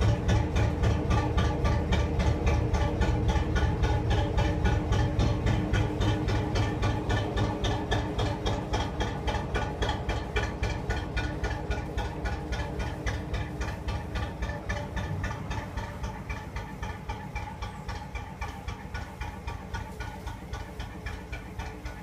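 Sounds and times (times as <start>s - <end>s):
boat diesel engine running: 0.0s - 22.0s.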